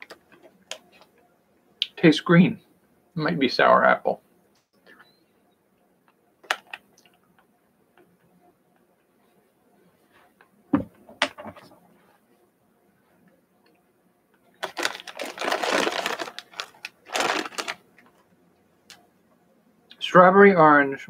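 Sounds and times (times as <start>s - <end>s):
plastic bag crinkling: 14.6s - 18.2s.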